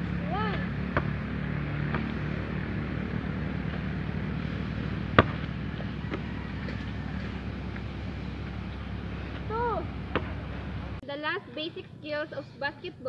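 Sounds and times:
steady low hum: 0:00.0 - 0:11.0
basketball smacking: 0:00.5 - 0:02.3, 0:05.0 - 0:06.8, 0:10.1 - 0:10.5.

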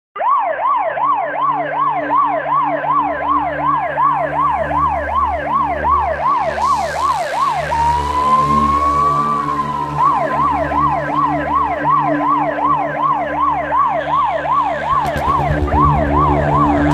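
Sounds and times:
police siren: 0:00.2 - 0:16.9
car rumble at high speed: 0:14.6 - 0:16.9.

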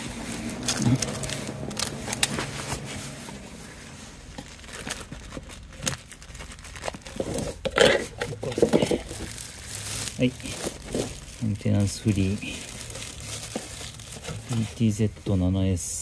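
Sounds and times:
packaging crinkling and tearing: 0:00.0 - 0:15.2
handling clicks and knocks: 0:07.1 - 0:09.3.

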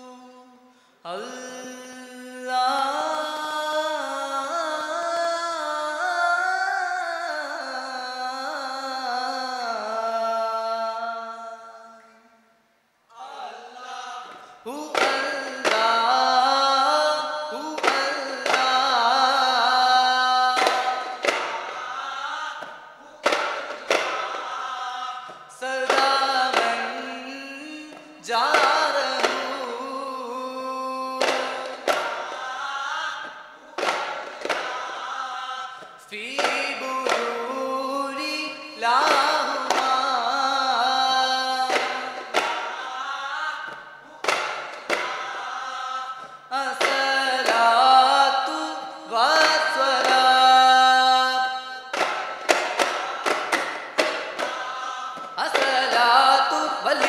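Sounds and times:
men chanting in unison: 0:13.1 - 0:57.0
frame drum beats: 0:14.3 - 0:16.5, 0:20.5 - 0:21.9, 0:22.6 - 0:24.6, 0:31.2 - 0:32.5, 0:41.6 - 0:42.8, 0:44.2 - 0:45.5, 0:51.9 - 0:56.2.

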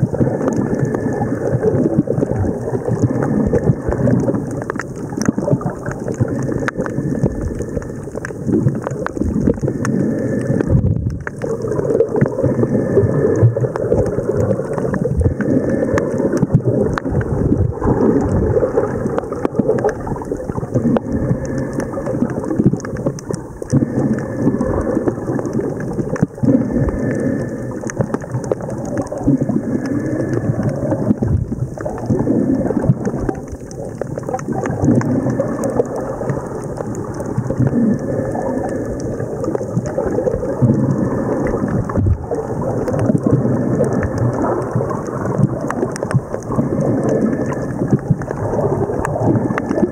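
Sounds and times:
muffled underwater churning: 0:00.0 - 0:49.9
small underwater clicks: 0:00.0 - 0:49.9.

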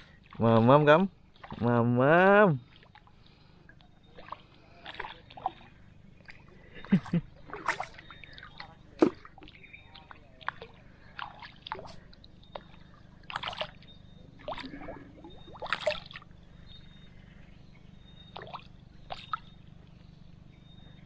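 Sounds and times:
water sloshing: 0:00.0 - 0:20.9
fish splashing at water surface: 0:04.0 - 0:16.3, 0:18.3 - 0:19.6.

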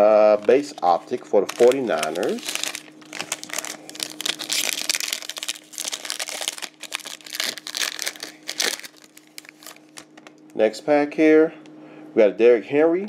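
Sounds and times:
foil wrapper crinkling: 0:00.0 - 0:10.5
wrapper tearing: 0:00.4 - 0:10.4.

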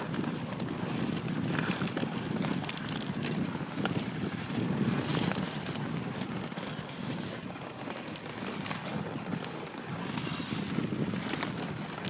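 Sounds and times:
sled runners rushing on snow: 0:00.0 - 0:12.0
wind on microphone: 0:00.0 - 0:12.0.

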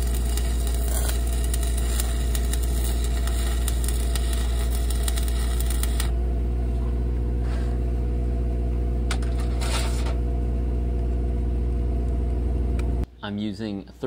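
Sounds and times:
welding arc crackling: 0:00.0 - 0:06.2
welder engine running: 0:00.0 - 0:13.0
metal scrapes: 0:09.2 - 0:10.2.

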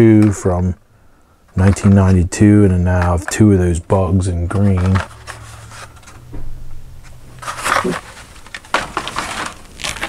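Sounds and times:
plastic blister packs rustling: 0:02.9 - 0:06.2, 0:07.3 - 0:10.0.

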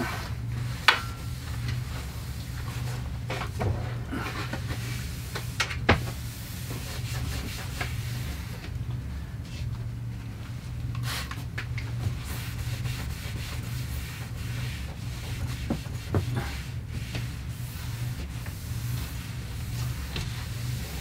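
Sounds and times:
steady low hum: 0:00.0 - 0:21.0
cloth wiping a surface: 0:03.8 - 0:08.6, 0:12.0 - 0:21.0.

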